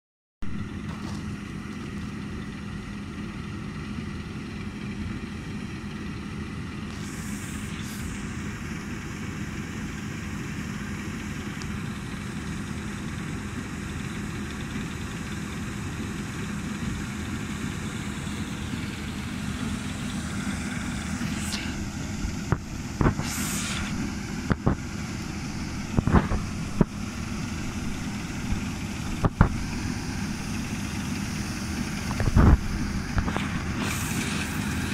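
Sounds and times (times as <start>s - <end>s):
combine harvester droning: 0.4s - 34.9s
short thumps: 22.5s - 29.9s.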